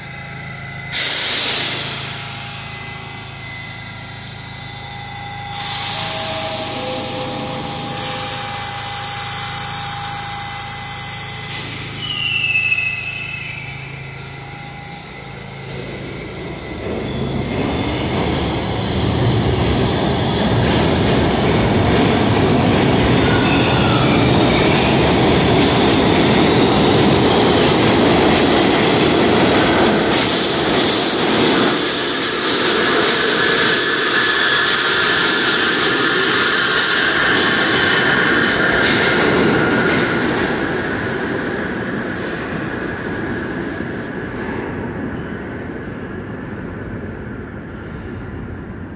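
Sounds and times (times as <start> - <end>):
subway train wheels rumbling on rail: 0.0 - 48.9
high wheel squeals: 0.3 - 19.0, 23.0 - 25.5.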